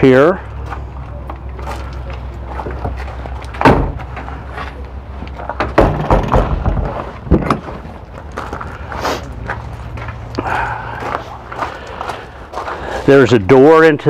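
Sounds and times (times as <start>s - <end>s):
footsteps on gravel: 0.5s - 5.6s, 6.9s - 13.4s
metal door bang: 3.6s - 4.1s, 5.6s - 7.8s.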